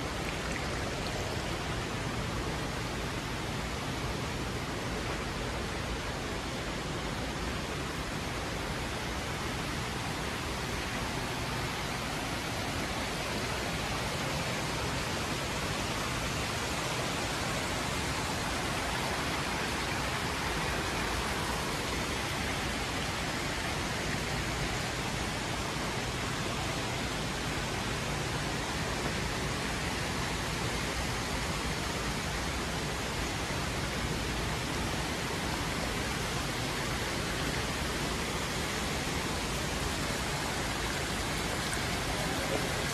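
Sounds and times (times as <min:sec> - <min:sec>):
water falling from fountains: 0:00.0 - 0:42.9.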